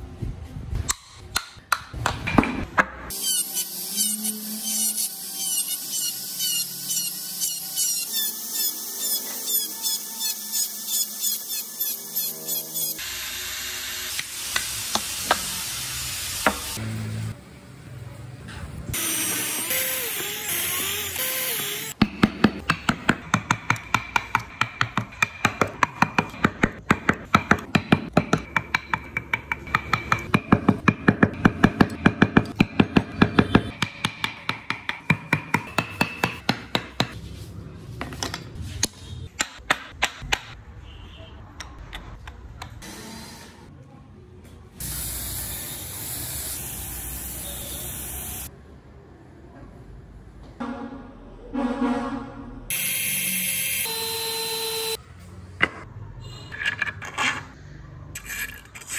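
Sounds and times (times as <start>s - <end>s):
chisel tapping wood: 22.0s - 37.2s.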